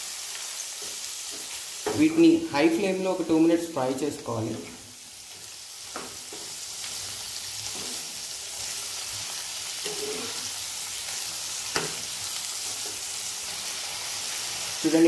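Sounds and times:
prawns sizzling in frying pan: 0:00.0 - 0:15.0
metal spoon scraping pan: 0:07.7 - 0:08.1, 0:09.8 - 0:10.5.

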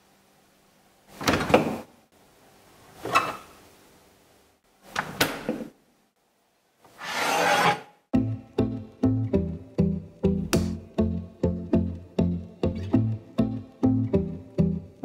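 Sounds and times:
frying pan scraping wooden shelf: 0:06.9 - 0:08.0.

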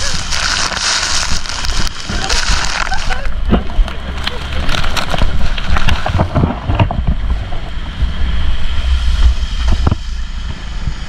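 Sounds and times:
water splashing: 0:00.0 - 0:08.2
low engine rumble: 0:00.0 - 0:11.0
wind buffeting microphone: 0:00.0 - 0:11.0.

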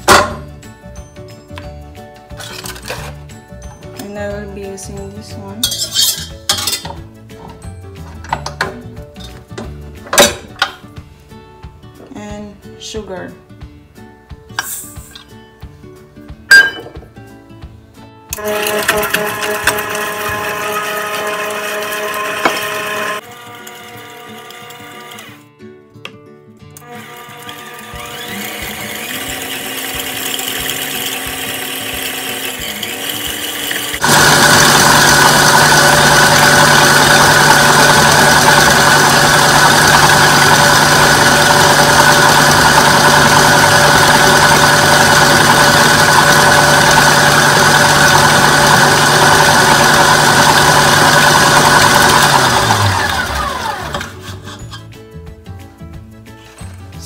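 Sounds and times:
stand mixer whirring: 0:18.4 - 0:25.3, 0:26.9 - 0:54.3.

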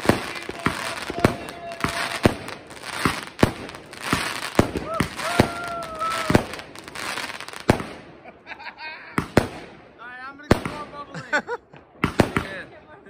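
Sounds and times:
fireworks crackle: 0:00.0 - 0:08.4, 0:11.9 - 0:12.7
fireworks bangs: 0:00.0 - 0:11.1, 0:11.7 - 0:12.8
person whooping: 0:04.8 - 0:06.6.

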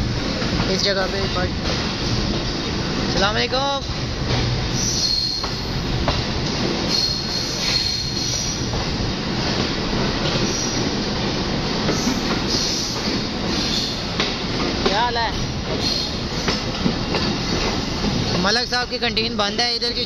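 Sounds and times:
train wheels rumbling on rail: 0:00.0 - 0:20.0
high wheel squeals: 0:04.7 - 0:05.7, 0:06.8 - 0:08.7, 0:10.4 - 0:10.8, 0:11.9 - 0:14.0, 0:15.8 - 0:16.2.

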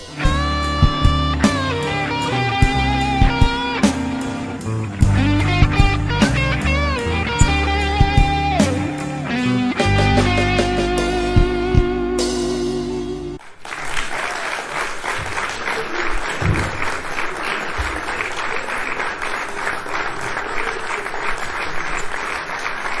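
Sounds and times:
crowd applauding: 0:00.0 - 0:11.3, 0:13.4 - 0:23.0
music: 0:00.0 - 0:13.4.

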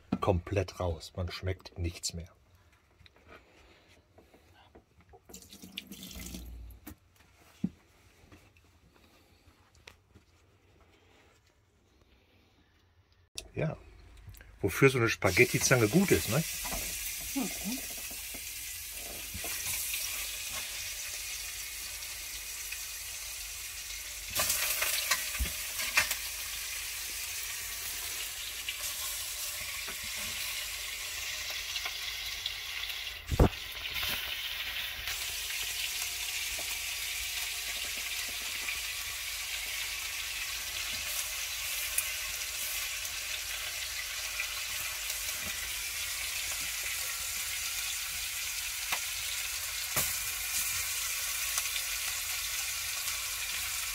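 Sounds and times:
meat sizzling in hot fat: 0:14.8 - 0:53.9.

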